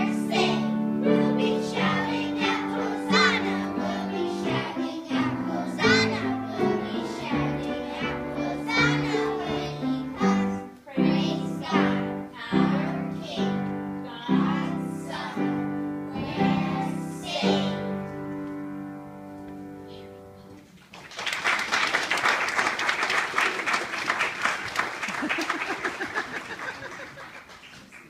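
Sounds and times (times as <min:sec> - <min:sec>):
children's choir singing: 0:00.0 - 0:18.4
applause: 0:20.8 - 0:28.0.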